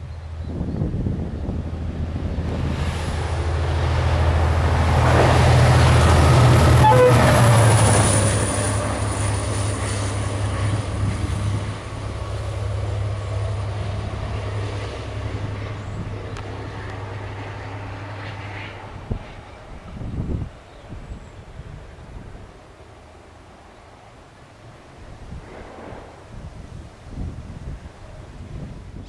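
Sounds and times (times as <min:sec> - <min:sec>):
diesel locomotive engine drone: 0:00.0 - 0:29.0.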